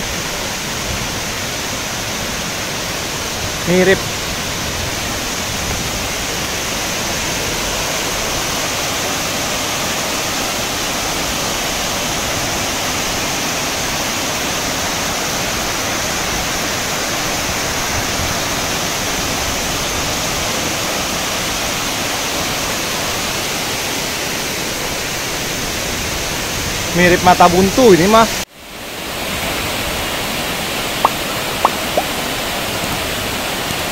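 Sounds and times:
waterfall rushing: 0:00.0 - 0:33.9.

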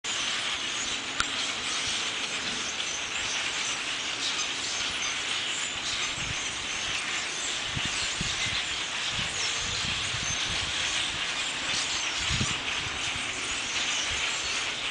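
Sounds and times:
flock of birds calling: 0:00.0 - 0:14.9
wind buffeting microphone: 0:05.7 - 0:14.9.

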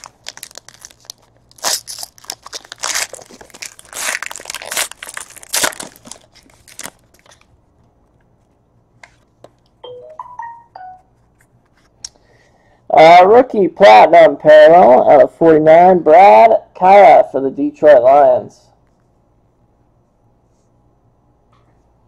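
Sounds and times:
foil wrapper tearing and crinkling: 0:00.0 - 0:07.5.

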